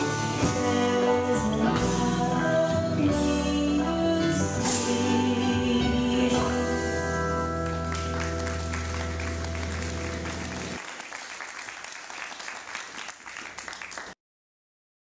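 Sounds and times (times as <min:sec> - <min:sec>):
audience applause: 0:07.4 - 0:14.2.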